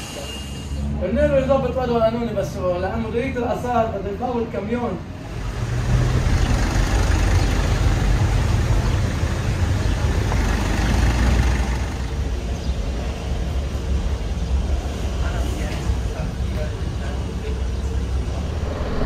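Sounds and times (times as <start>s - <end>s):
street noise: 0.0s - 19.0s
rush of wind: 18.0s - 19.0s.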